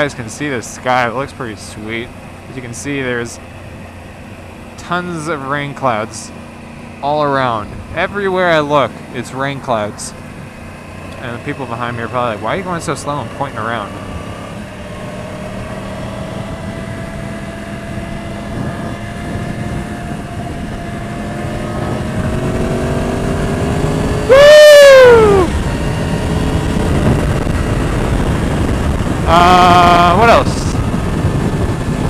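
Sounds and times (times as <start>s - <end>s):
motorcycle engine at speed: 0.0s - 32.0s
wind noise: 14.0s - 32.0s
loud short rising and falling call: 24.2s - 25.6s.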